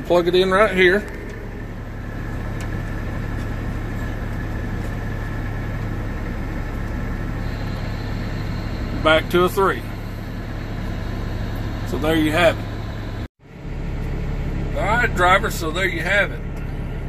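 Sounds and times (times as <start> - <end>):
steady low hum: 0.0 - 17.0
radio static hiss: 7.4 - 10.7.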